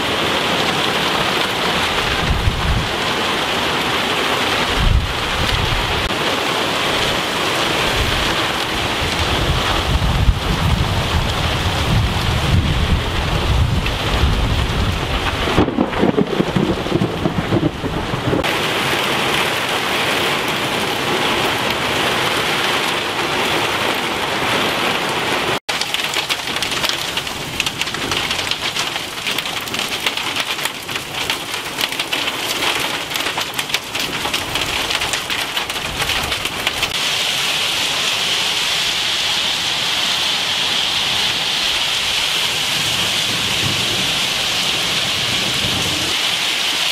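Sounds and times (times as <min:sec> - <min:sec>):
heavy rain pelting down: 0:00.0 - 0:46.9
low thunder rumble: 0:01.9 - 0:03.1, 0:07.9 - 0:18.5.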